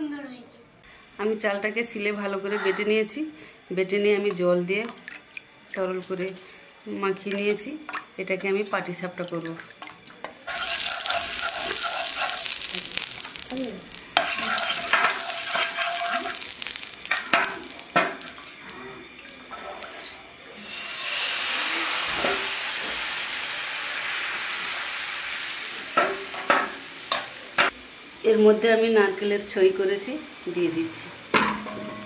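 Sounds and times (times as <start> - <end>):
batter sizzling on hot pan: 9.6 - 32.0.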